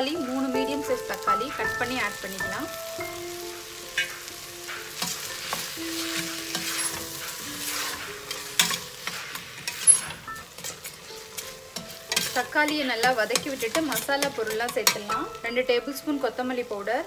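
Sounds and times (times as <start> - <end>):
onions sizzling in oil: 0.0 - 17.0
ladle scraping pot: 5.0 - 15.0.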